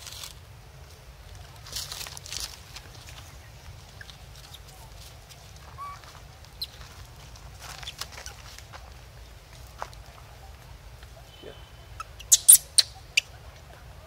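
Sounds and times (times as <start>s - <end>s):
rustling: 0.0s - 11.1s
animal high chirps: 11.9s - 13.4s.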